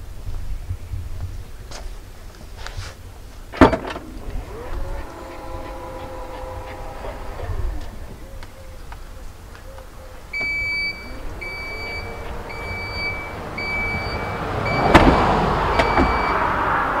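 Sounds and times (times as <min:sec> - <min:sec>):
tailgate motor humming: 0:03.5 - 0:16.6
tailgate latching thud: 0:03.6 - 0:04.2
warning chime beeps: 0:10.3 - 0:15.0, 0:15.7 - 0:16.4.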